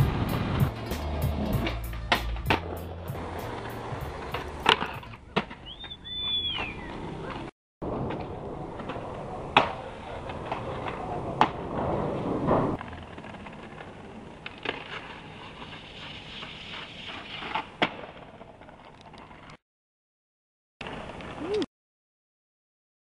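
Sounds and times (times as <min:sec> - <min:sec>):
trucks grinding on concrete: 0:00.0 - 0:05.2
skateboard clacks: 0:00.0 - 0:06.7, 0:07.3 - 0:15.7
skateboard wheels rolling on concrete: 0:00.0 - 0:19.6, 0:20.8 - 0:21.7.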